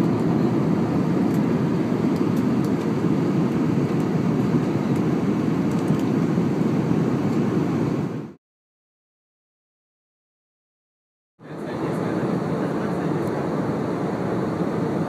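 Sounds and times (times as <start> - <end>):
airliner cabin rumble: 0.0 - 8.4, 11.4 - 15.0.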